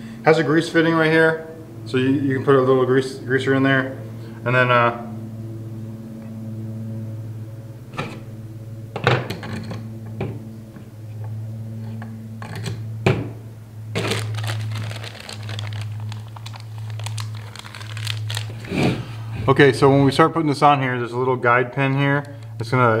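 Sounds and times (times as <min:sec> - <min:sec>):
steady low hum: 0:00.0 - 0:23.0
plastic packaging crinkling: 0:14.0 - 0:18.7.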